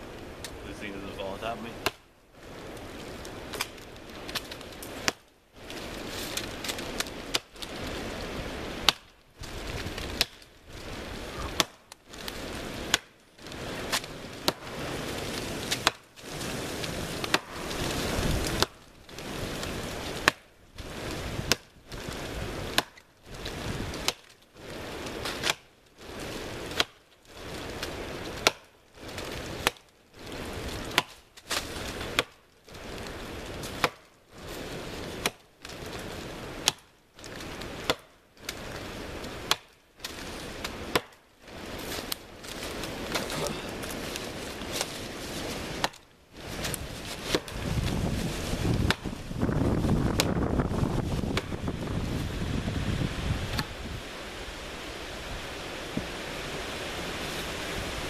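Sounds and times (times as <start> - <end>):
rustling hiss: 0.0 - 58.0
axe chopping into a tree trunk: 11.5 - 11.8, 15.7 - 16.0, 28.4 - 28.7, 33.8 - 34.1, 37.9 - 38.1, 40.9 - 41.2, 45.8 - 46.0.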